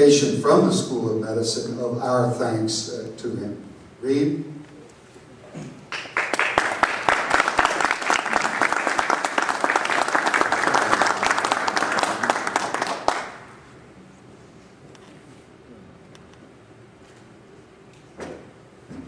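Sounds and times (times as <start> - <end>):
audience applauding: 5.9 - 13.6.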